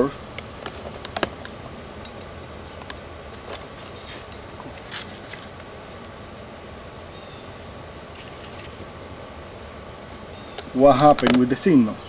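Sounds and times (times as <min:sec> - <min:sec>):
steady background noise: 0:00.0 - 0:12.0
handling clicks and knocks: 0:00.3 - 0:05.6, 0:11.1 - 0:11.5.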